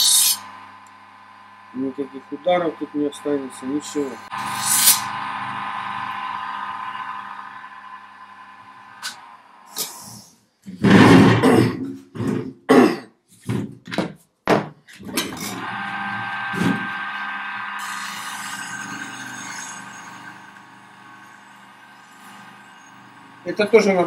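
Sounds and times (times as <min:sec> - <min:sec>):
short harsh strokes: 0:00.0 - 0:00.5, 0:04.2 - 0:05.2
bench grinder motor humming: 0:00.3 - 0:09.6, 0:15.4 - 0:24.0.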